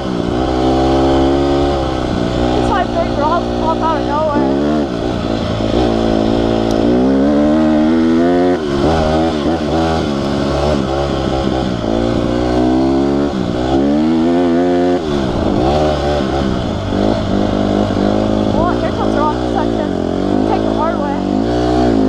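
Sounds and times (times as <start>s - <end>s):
dirt bike engine accelerating: 0.0s - 22.0s.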